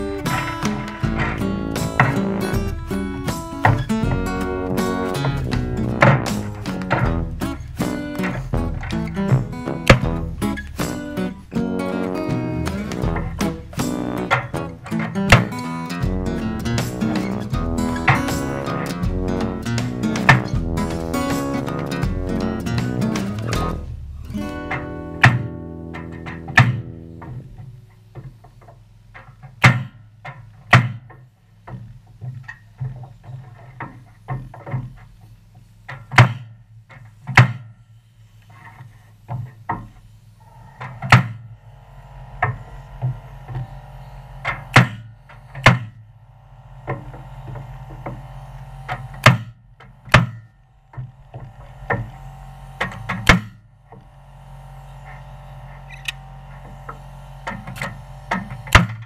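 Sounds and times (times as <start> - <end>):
nail gun firing into wood: 29.6 - 30.0, 44.4 - 45.9, 48.9 - 50.5, 52.8 - 53.6, 57.4 - 59.0.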